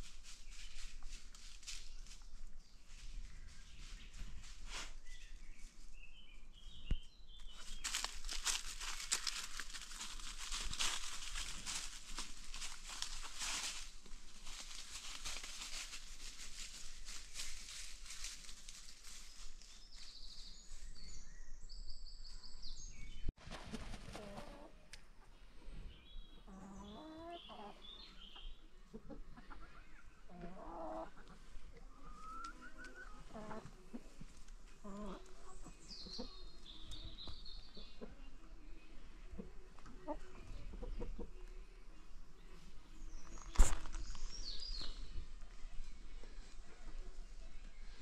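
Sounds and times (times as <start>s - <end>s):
chickens scratching in dry leaves: 0.0s - 5.8s, 7.5s - 20.9s, 23.4s - 24.7s, 29.0s - 38.7s, 42.4s - 48.0s.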